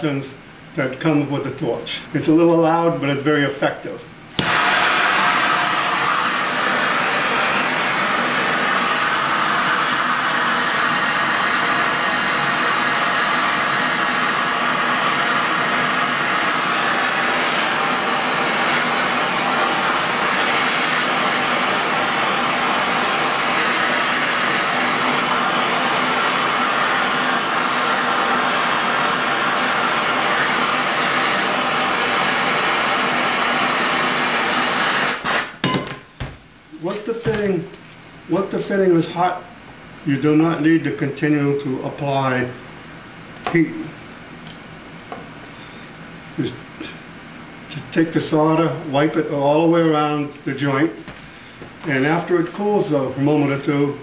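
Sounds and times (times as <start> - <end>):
gas torch hissing: 4.3 - 35.6.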